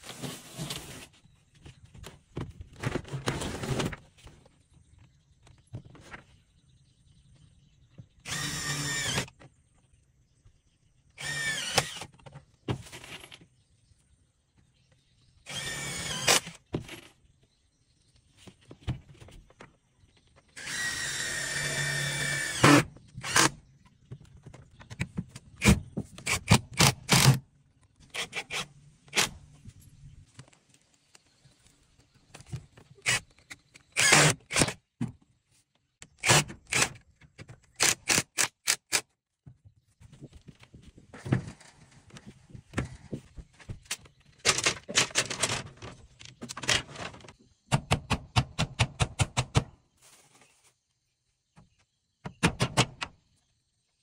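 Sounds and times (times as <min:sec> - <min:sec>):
cordless drill whining: 0:08.3 - 0:09.3, 0:11.2 - 0:12.1, 0:15.5 - 0:16.5, 0:20.6 - 0:23.5, 0:34.0 - 0:34.6.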